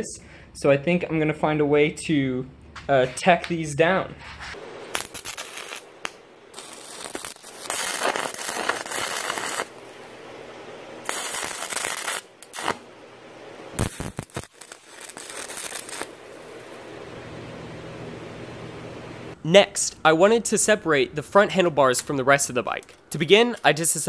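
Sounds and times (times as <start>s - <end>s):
arc welding crackling hiss: 4.5s - 17.2s.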